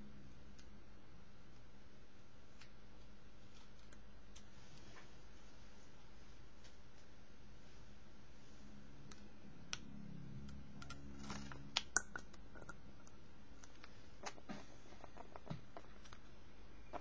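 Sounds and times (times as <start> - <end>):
glass dropper tapping bottle: 12.0 - 12.8.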